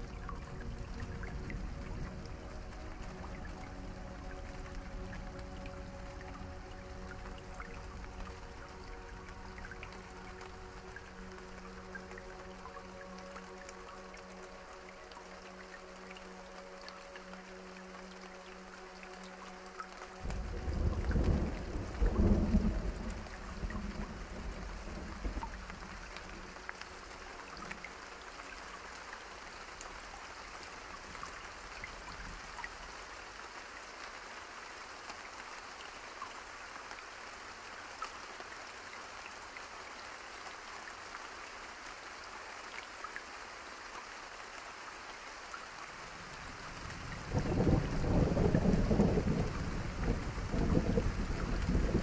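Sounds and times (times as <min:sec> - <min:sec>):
faint raindrop ticks: 0:00.0 - 0:52.0
steady rain hiss: 0:00.0 - 0:52.0
low thunder rumbles: 0:20.2 - 0:26.4, 0:46.5 - 0:52.0.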